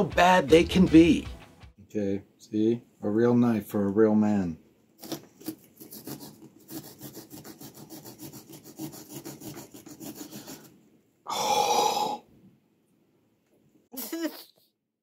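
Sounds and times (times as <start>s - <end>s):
saw cutting through pumpkin: 5.0s - 10.7s.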